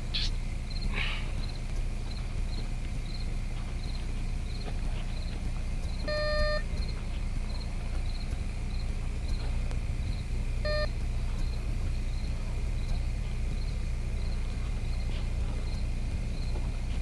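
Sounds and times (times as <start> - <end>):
crickets chirping: 0.0 - 17.0
low hum: 0.0 - 17.0
metal detector beeps: 6.1 - 6.6, 10.6 - 10.9.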